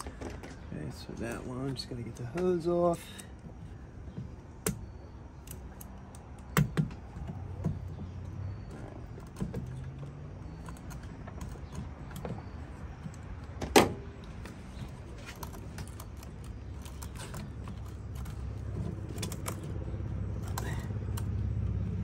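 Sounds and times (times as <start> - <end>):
tools clicking and rattling: 4.7 - 21.3.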